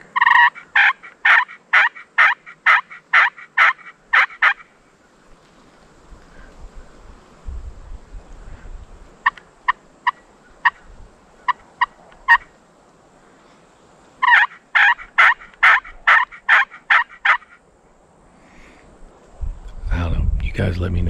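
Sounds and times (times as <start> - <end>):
turkey call clucks: 0.0 - 4.7, 9.2 - 12.5, 14.2 - 17.6
turkey call yelps: 0.1 - 4.7, 9.2 - 12.5, 14.2 - 17.6.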